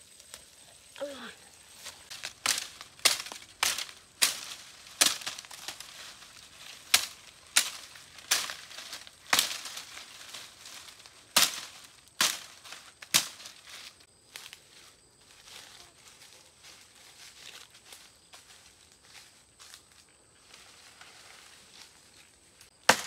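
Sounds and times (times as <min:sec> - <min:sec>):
sharp cracking strikes: 0:02.1 - 0:06.0, 0:06.7 - 0:10.0, 0:10.7 - 0:13.5, 0:22.8 - 0:23.0.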